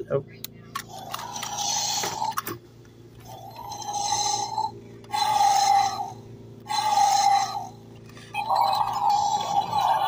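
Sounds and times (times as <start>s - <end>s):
electronic dinosaur roars: 1.1s - 2.4s, 3.2s - 7.8s, 8.4s - 10.0s.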